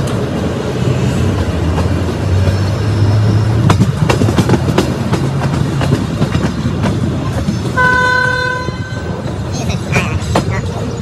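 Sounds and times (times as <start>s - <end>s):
vehicle horn: 7.8s - 9.0s.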